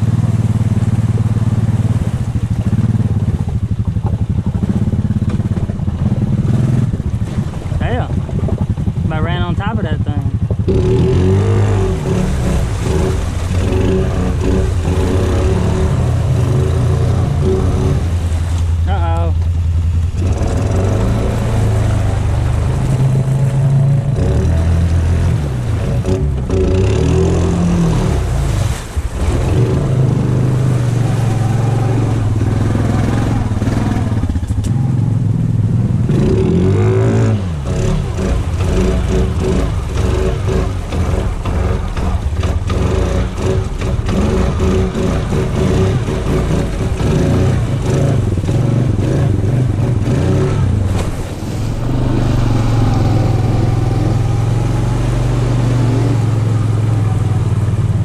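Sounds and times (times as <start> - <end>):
atv engine running: 0.0 - 58.0
water splashing: 0.0 - 58.0
clatter: 37.7 - 50.3.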